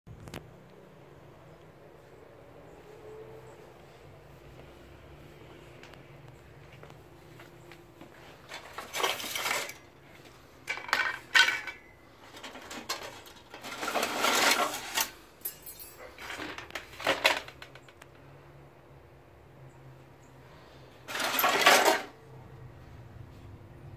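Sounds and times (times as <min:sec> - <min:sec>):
junk clattering and scraping: 0:08.0 - 0:18.1, 0:21.0 - 0:22.2.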